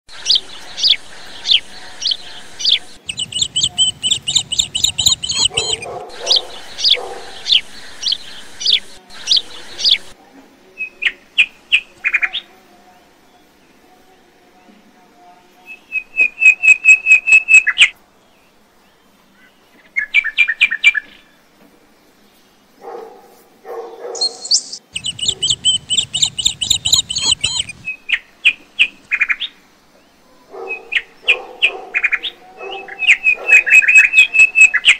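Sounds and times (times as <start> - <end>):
birds chirping: 0.1 - 10.2, 24.0 - 34.9.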